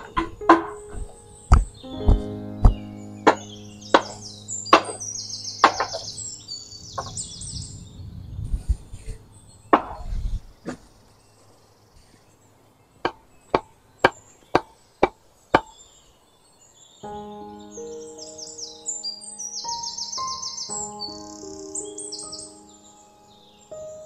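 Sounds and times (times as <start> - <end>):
sharp knocks: 0.0 - 5.0, 5.6 - 6.2
background music: 0.0 - 7.8, 17.0 - 24.0
birds chirping: 0.0 - 24.0.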